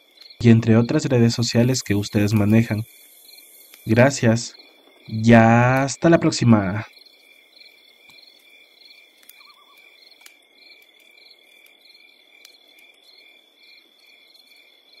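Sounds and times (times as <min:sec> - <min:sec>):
crickets trilling and chirping: 0:00.0 - 0:15.0
faint scattered clicks: 0:00.1 - 0:02.8, 0:09.1 - 0:11.8, 0:12.4 - 0:13.2.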